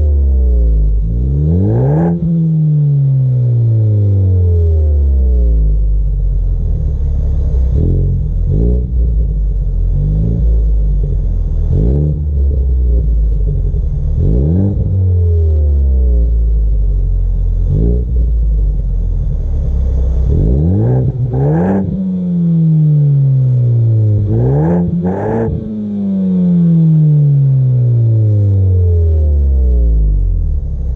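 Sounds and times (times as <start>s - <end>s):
car engine revving: 0.0s - 30.9s.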